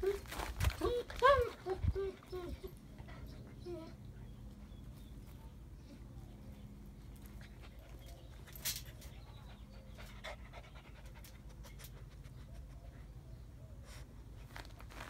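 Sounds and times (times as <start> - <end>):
puppy panting: 7.2 - 13.2.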